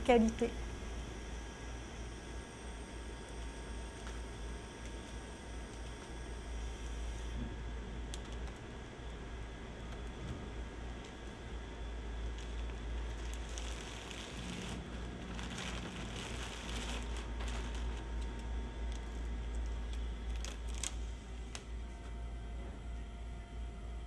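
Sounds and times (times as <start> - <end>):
steady low hum: 0.0 - 24.0
plastic bag crinkling: 12.2 - 21.7.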